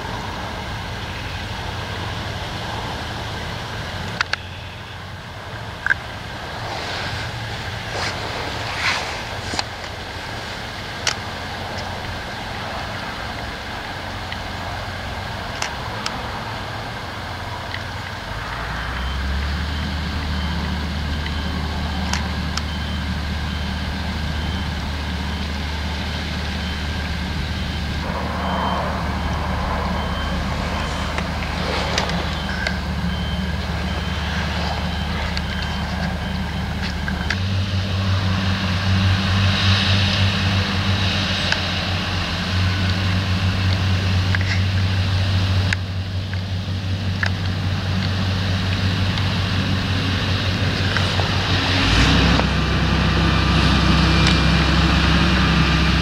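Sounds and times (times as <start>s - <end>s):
diesel engines running: 0.0s - 56.0s
faint high beep: 4.2s - 6.2s, 17.8s - 38.1s.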